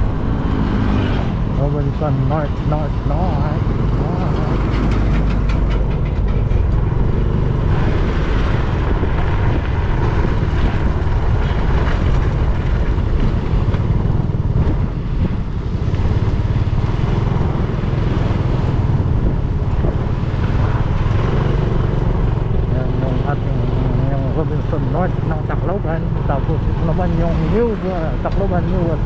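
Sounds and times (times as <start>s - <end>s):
motorcycle engine running: 0.0s - 29.0s
road noise: 0.0s - 29.0s
wind buffeting microphone: 0.0s - 29.0s.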